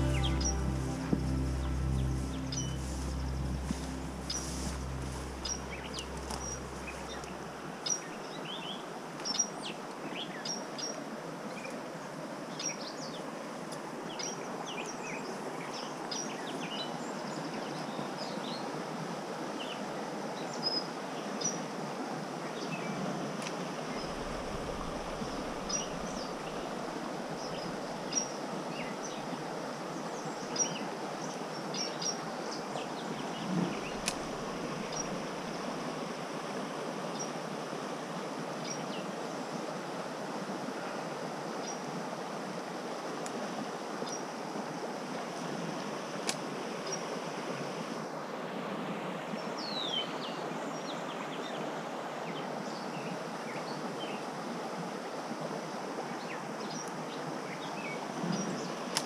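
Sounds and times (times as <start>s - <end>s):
birds chirping: 0.0s - 8.7s, 33.6s - 35.6s
creek water running: 0.0s - 59.0s.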